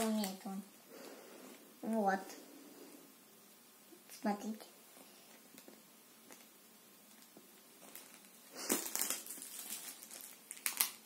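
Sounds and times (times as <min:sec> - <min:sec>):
plastic packets rustling: 0:00.0 - 0:00.6, 0:07.1 - 0:11.0.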